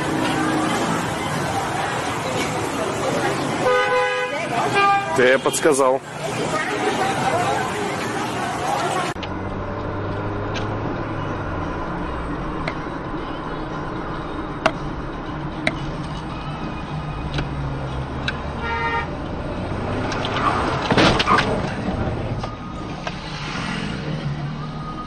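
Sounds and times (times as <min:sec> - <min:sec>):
car engine and road noise: 0:00.0 - 0:25.0
car horn toot: 0:03.6 - 0:05.5, 0:18.6 - 0:19.1.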